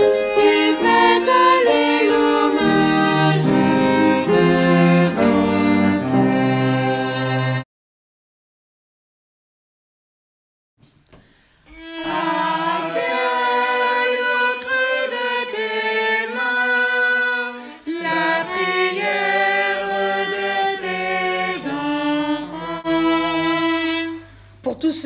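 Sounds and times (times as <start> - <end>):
slow instrumental music with violin: 0.0 - 7.6, 11.7 - 24.6.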